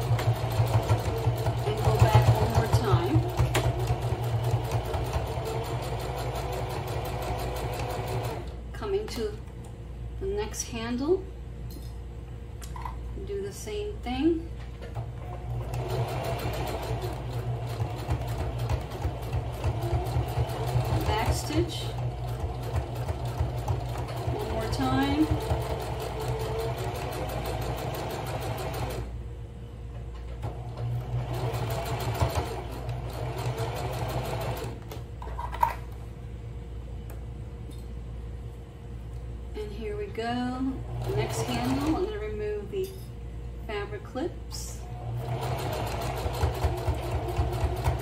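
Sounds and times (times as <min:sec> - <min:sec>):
sewing machine motor hum: 0:00.0 - 0:08.6, 0:14.9 - 0:29.2, 0:30.3 - 0:35.0, 0:40.6 - 0:42.3, 0:44.8 - 0:48.0.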